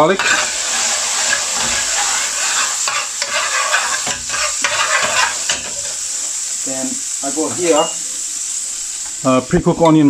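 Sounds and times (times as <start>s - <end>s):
metal spoon scraping pan: 0.0s - 6.0s
garlic sizzling in hot oil: 0.0s - 9.8s.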